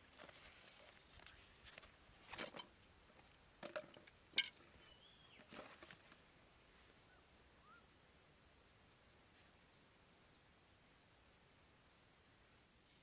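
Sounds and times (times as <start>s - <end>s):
scuffs and knocks on dirt: 0.0s - 6.2s
faint bird chirps: 4.8s - 5.6s, 6.9s - 10.6s.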